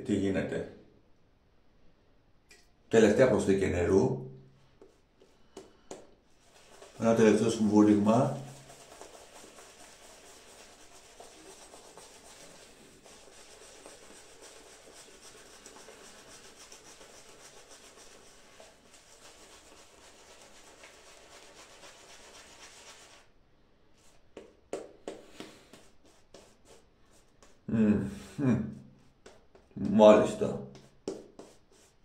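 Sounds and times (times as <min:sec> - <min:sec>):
shaving brush rubbing lather: 0:04.8 - 0:23.3, 0:24.0 - 0:27.6, 0:29.0 - 0:32.0.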